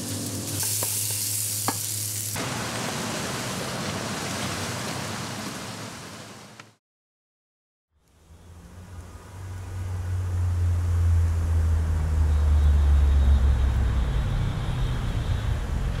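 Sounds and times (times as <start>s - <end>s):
road traffic rumble: 8.0s - 16.0s.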